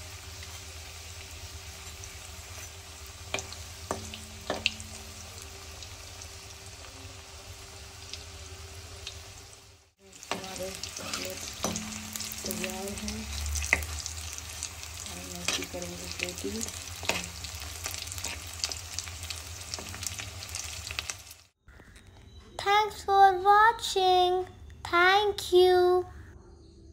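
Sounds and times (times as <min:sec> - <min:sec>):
cutlets deep-frying in oil: 0:00.0 - 0:21.6.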